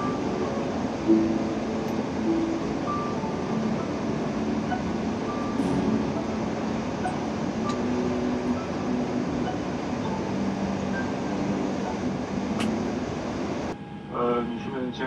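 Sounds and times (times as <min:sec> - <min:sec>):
aircraft cabin hiss and hum: 0:00.0 - 0:15.0.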